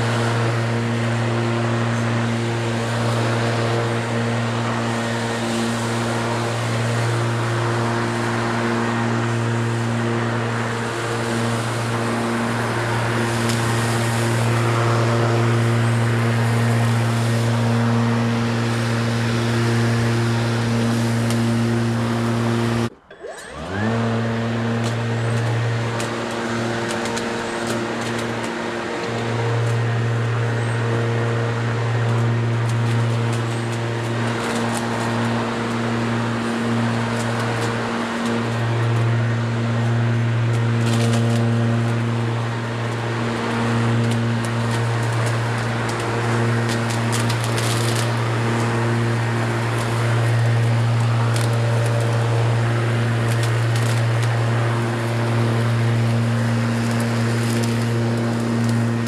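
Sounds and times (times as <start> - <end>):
electric lawnmower humming: 0.0 - 59.0
motor spinning up whine: 0.0 - 59.0.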